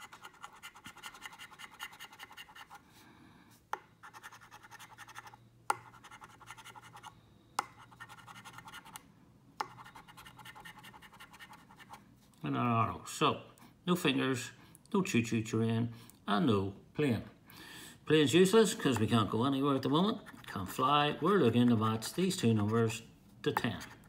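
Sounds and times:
coin scratching scratchcard: 0.0s - 2.8s, 4.0s - 7.1s, 7.8s - 9.0s, 9.7s - 12.0s.

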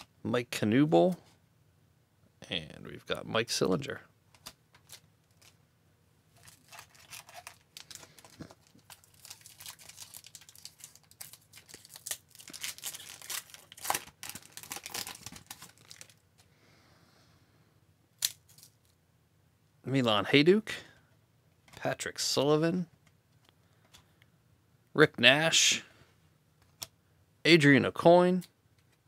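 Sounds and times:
plastic wrapper crinkling: 4.4s - 5.6s, 6.3s - 16.2s.

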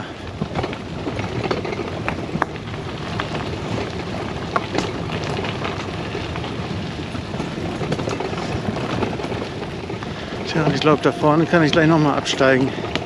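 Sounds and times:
bicycle tyres rumbling on rough path: 0.0s - 13.0s
trailer clicks and rattles: 0.0s - 13.0s.

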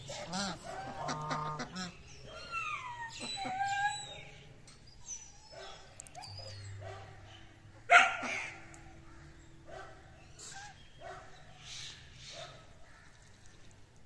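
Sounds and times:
animal squeals: 2.3s - 4.3s.

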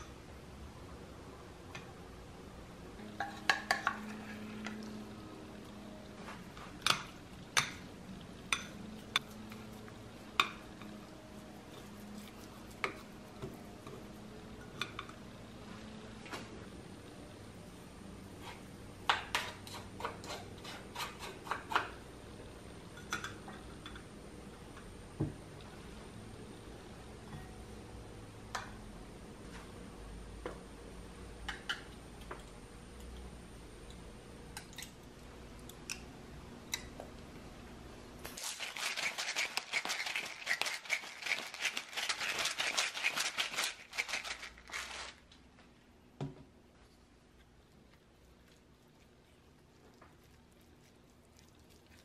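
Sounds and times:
pepper grinder grinding: 38.3s - 45.3s
wooden spoon scraping metal strainer: 38.4s - 45.2s.

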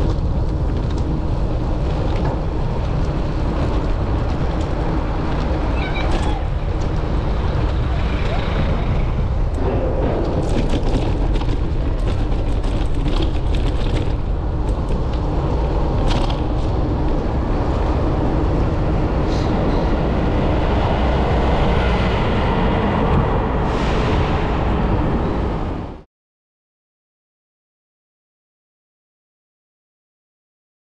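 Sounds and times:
traffic noise: 0.0s - 26.1s
wind rumble: 0.0s - 26.1s
sharp clicks and rattles: 9.0s - 16.9s.

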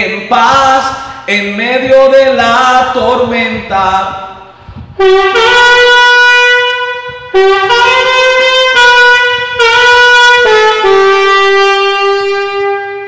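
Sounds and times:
alto saxophone melody: 5.0s - 13.0s.

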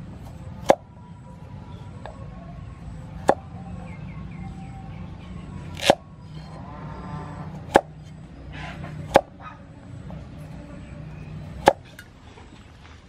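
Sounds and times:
cleaver chopping on wooden board: 3.2s - 3.4s, 5.7s - 6.0s, 7.6s - 8.0s, 8.9s - 9.3s, 11.5s - 12.0s.

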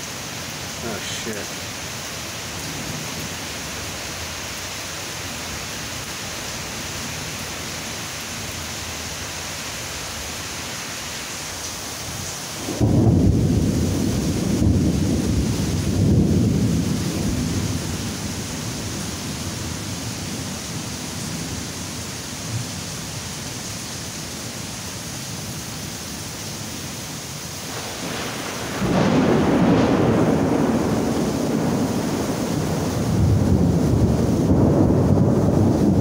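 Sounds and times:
rain hissing: 0.0s - 36.0s
thunder rumbling: 12.6s - 21.7s, 27.7s - 36.0s.

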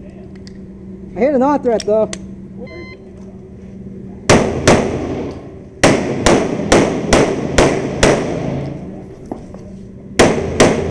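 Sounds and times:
pistol shots echoing indoors: 4.3s - 8.7s, 10.2s - 10.9s.

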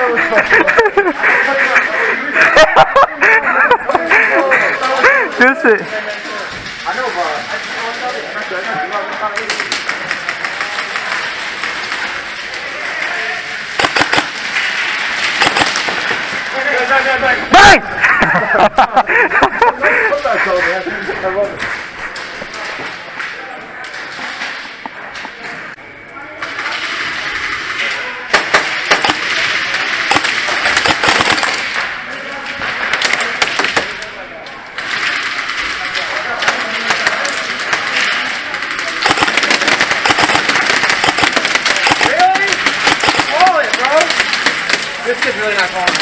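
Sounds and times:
background clatter: 0.0s - 46.0s
faint voices: 0.0s - 46.0s
airsoft rifle shots: 13.7s - 16.5s, 26.8s - 31.9s, 36.5s - 45.1s, 45.8s - 46.0s.

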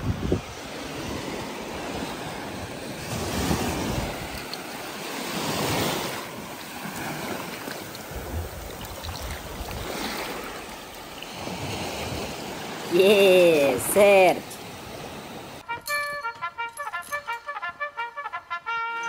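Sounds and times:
wind buffeting microphone: 0.0s - 12.9s
surf washing over sand: 0.0s - 15.6s.

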